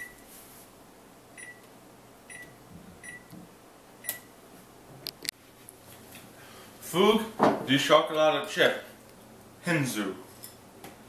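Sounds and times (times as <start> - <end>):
oven panel beeps: 0.0 - 0.2, 1.4 - 1.6, 2.3 - 3.3.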